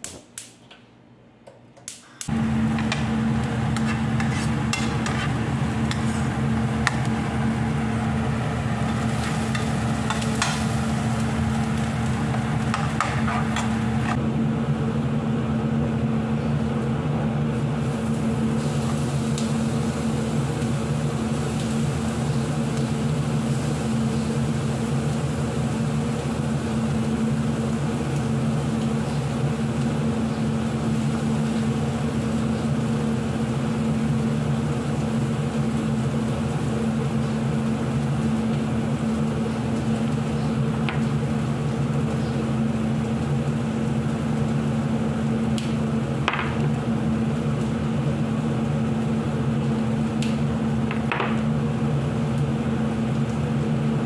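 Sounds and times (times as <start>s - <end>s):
onions sizzling in a pan: 2.3s - 14.2s, 17.6s - 53.0s
loud motor hum: 2.3s - 54.0s
metal spatula scraping pan: 3.8s - 6.2s.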